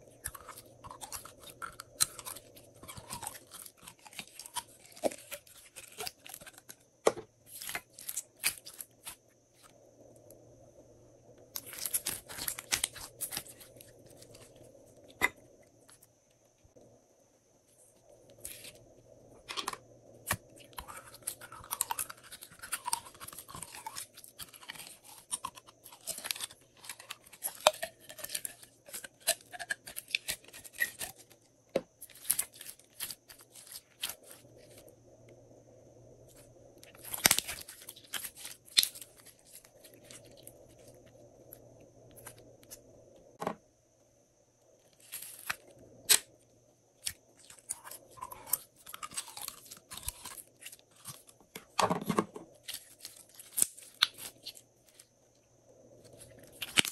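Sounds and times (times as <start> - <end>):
faint steady hum: 0.0 - 56.9.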